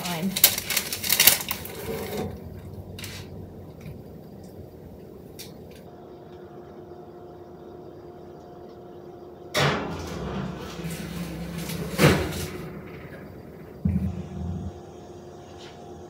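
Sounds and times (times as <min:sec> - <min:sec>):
faint appliance hum: 0:00.0 - 0:16.0.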